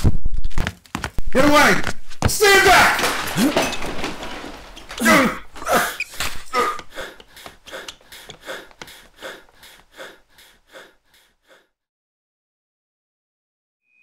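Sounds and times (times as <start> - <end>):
man gasping: 5.0 - 11.8.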